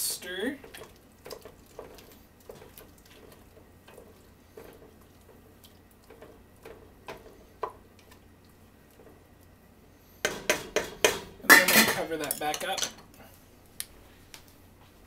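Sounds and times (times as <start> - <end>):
liquid sloshing: 0.3 - 9.2
spoon knocking against pot: 10.2 - 12.0.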